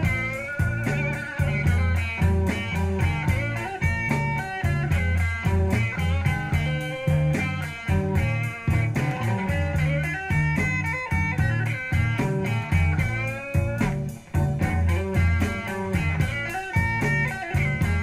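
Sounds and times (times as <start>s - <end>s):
guitar rock music from speakers: 0.0s - 18.0s.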